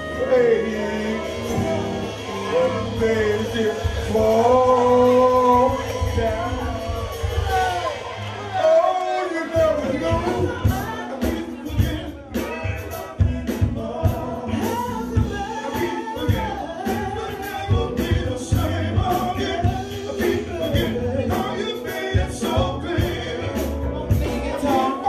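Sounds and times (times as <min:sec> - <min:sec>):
steady drum beat: 0:00.0 - 0:08.8, 0:09.4 - 0:25.0
keyboard: 0:00.0 - 0:25.0
voices singing together: 0:00.0 - 0:25.0
woman singing lead: 0:10.0 - 0:25.0.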